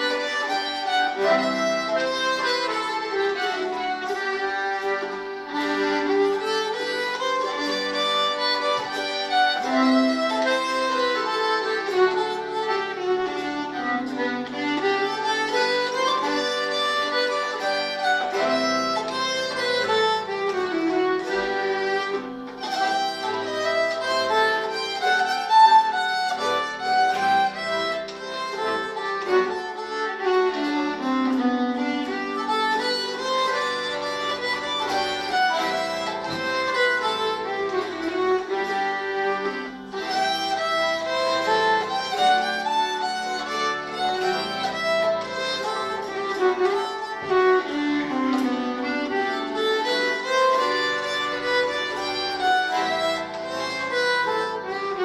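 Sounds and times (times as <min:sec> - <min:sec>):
bowed string folk melody: 0:00.0 - 0:55.0.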